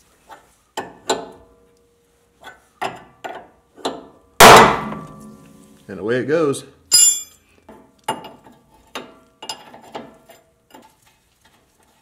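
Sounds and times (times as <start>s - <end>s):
metallic tool clinks: 6.9s - 7.4s.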